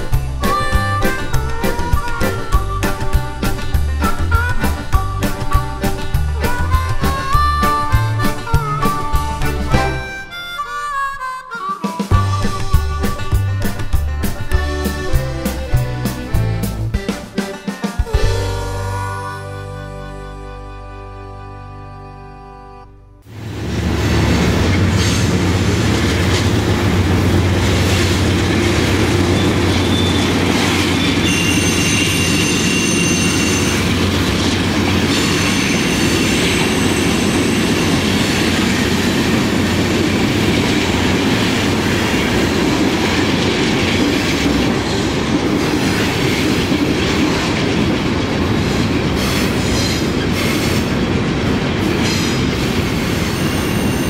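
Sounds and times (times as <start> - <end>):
rail clatter: 0.0 - 10.4, 23.3 - 54.0
diesel locomotive engine drone: 0.0 - 10.9, 12.1 - 54.0
wheel squeal: 0.0 - 13.2, 27.6 - 39.1, 52.0 - 54.0.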